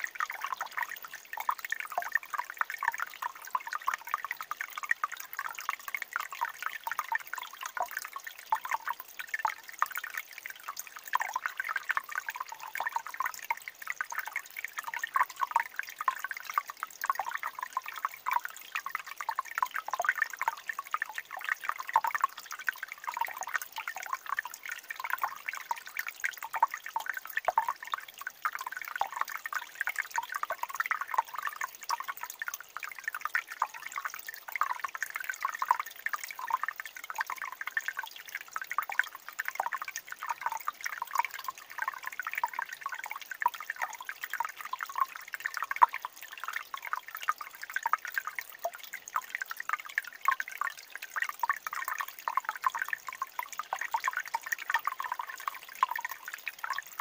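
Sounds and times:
stream trickling over rocks: 0.0 - 57.0.

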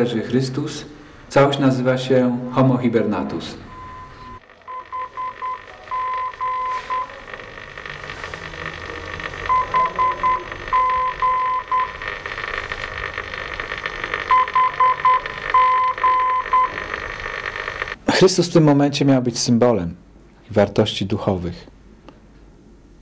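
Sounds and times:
electronic beeping: 3.6 - 18.0
radio static hiss: 4.2 - 18.2.

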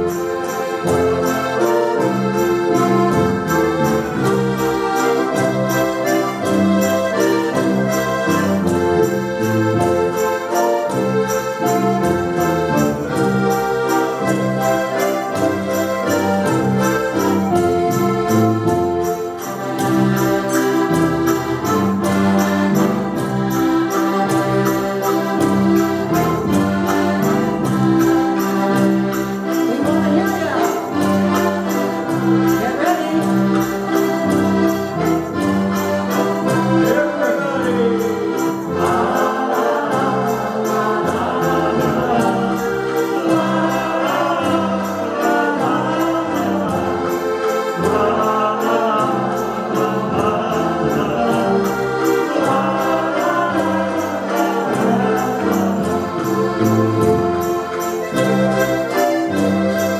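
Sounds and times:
button accordions playing: 0.0 - 59.9.

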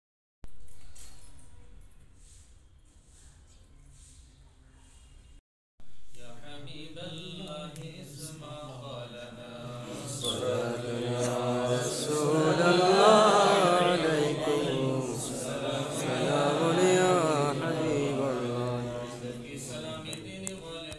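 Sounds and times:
men chanting melodically: 6.8 - 20.4.

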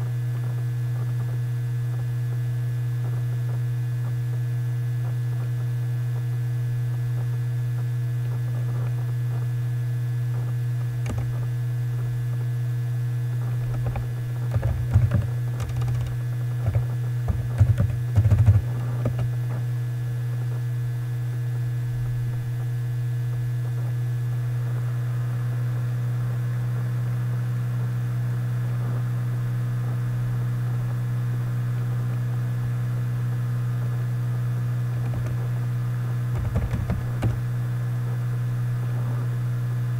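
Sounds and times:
low electrical hum: 0.0 - 39.9
computer keyboard typing: 13.7 - 19.3, 35.1 - 35.4, 36.4 - 37.5.

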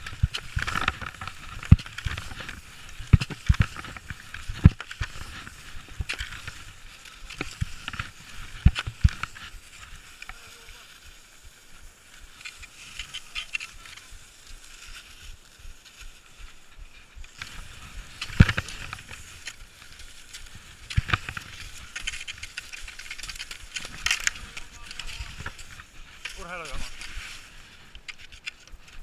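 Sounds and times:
ski poles planting and clicking: 0.0 - 29.0
skis sliding on snow: 0.0 - 29.0.

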